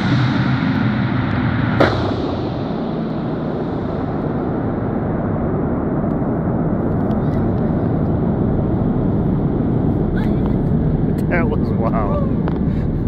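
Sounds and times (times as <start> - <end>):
echoing rumble of falling object: 0.0 - 9.8
sharp knock: 1.7 - 4.4.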